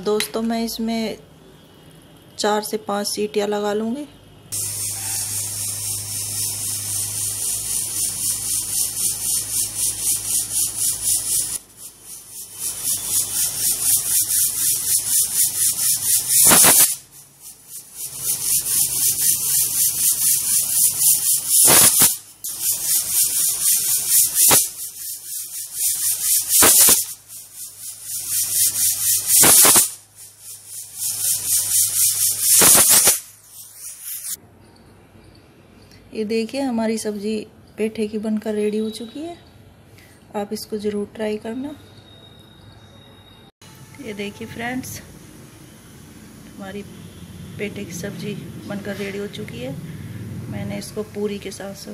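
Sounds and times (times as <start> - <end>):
pressure cooker whistling steam: 4.5 - 34.4, 41.7 - 48.2.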